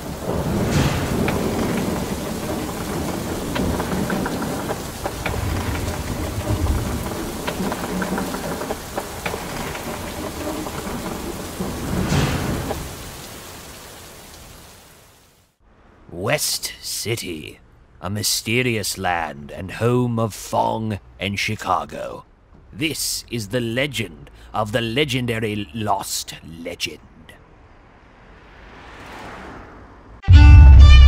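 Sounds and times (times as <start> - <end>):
rolling thunder: 0.0 - 14.0
steady rain: 0.0 - 16.0.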